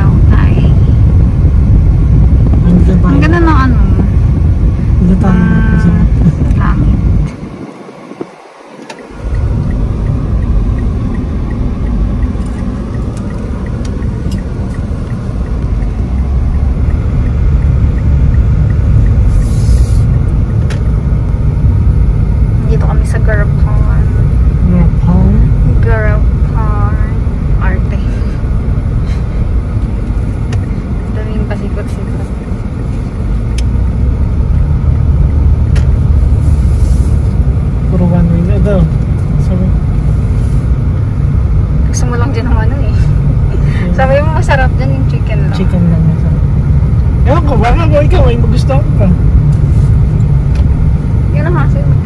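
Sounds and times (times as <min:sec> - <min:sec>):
engine and road rumble: 0:00.0 - 0:52.0
turn signal clicking: 0:06.0 - 0:24.9, 0:28.5 - 0:31.8, 0:32.4 - 0:36.6, 0:48.1 - 0:52.0.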